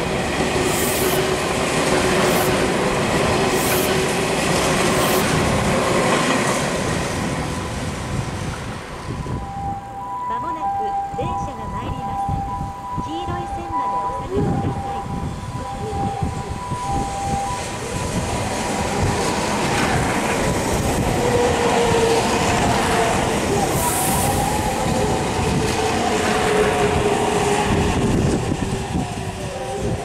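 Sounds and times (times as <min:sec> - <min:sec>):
train whine: 0:00.0 - 0:30.0
two-note warning tone: 0:09.3 - 0:18.2.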